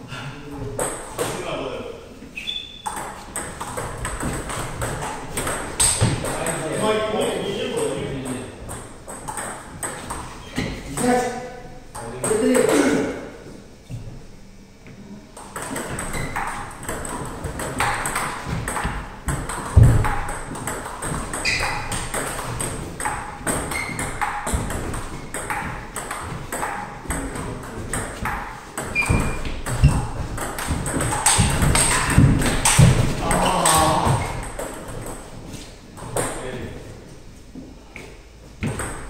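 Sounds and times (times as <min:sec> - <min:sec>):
ping pong ball hitting paddles: 0:00.8 - 0:01.4, 0:02.5 - 0:11.2, 0:11.9 - 0:12.9, 0:15.4 - 0:35.2, 0:38.0 - 0:39.0
ball bouncing on table: 0:02.8 - 0:06.6, 0:15.4 - 0:35.2.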